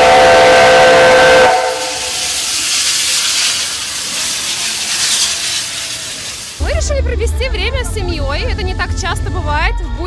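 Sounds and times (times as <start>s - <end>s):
hiss of steam: 0.0s - 6.6s
steam locomotive whistle: 0.0s - 6.6s.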